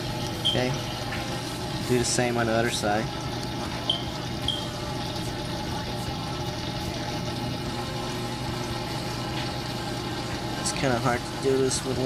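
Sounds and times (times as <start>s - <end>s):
protein skimmer humming: 0.0s - 12.0s.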